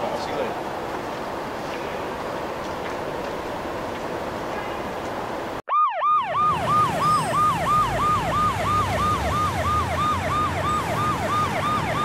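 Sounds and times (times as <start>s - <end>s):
low traffic rumble: 0.0s - 12.0s
siren yelping: 5.7s - 12.0s.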